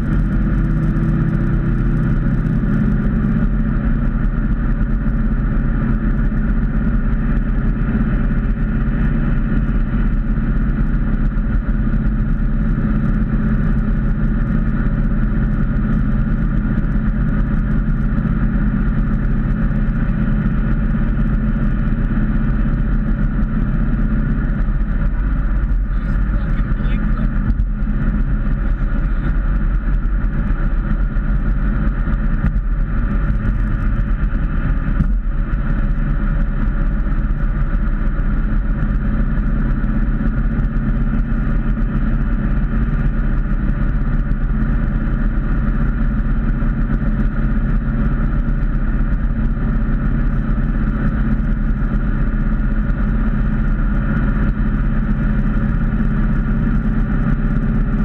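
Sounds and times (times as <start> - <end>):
car engine drone: 0.0 - 58.0.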